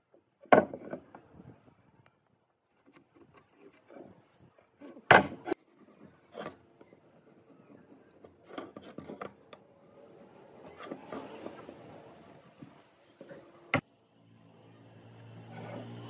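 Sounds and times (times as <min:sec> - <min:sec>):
tools handled on wooden workbench: 0:00.4 - 0:01.3, 0:02.8 - 0:09.6.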